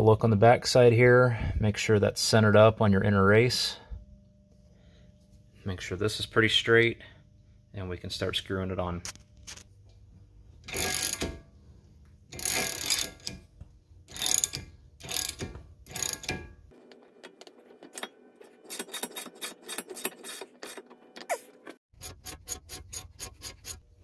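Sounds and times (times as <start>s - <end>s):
ratchet wrench clicking: 10.7s - 11.4s, 12.3s - 13.4s, 14.1s - 16.4s.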